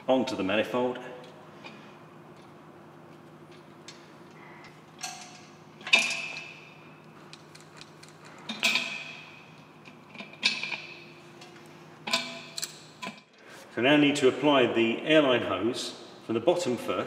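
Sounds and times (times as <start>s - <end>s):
low steady hum: 0.0s - 17.0s
spanner clinking on metal: 4.6s - 6.7s, 7.3s - 13.2s.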